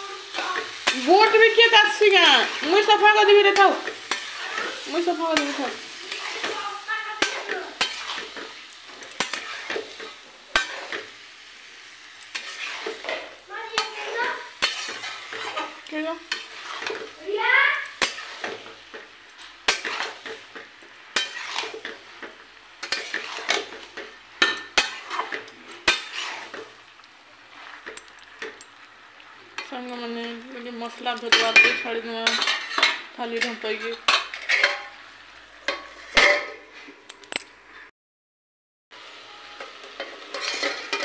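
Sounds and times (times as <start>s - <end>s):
beans sizzling: 0.0s - 37.9s, 38.9s - 41.0s
metal spatula scraping a pan: 0.1s - 26.9s, 29.4s - 35.0s, 35.6s - 37.0s, 39.3s - 41.0s
spatula squealing on metal: 12.3s - 13.0s, 22.9s - 23.6s, 25.9s - 26.6s.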